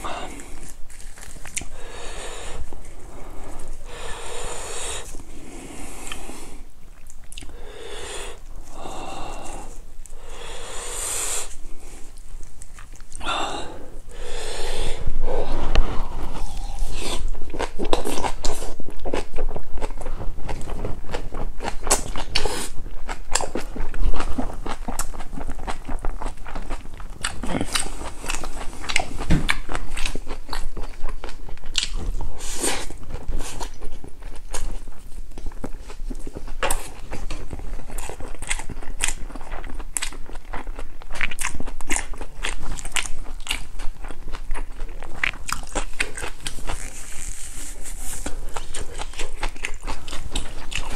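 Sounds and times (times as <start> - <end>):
wet mouth sounds: 0.0 - 30.7
crunchy chewing: 0.0 - 50.9.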